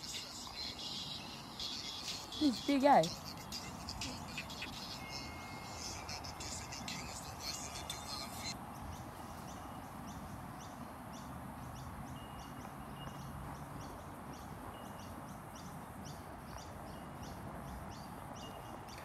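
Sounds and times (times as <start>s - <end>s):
short high chirping calls: 0.0s - 8.6s.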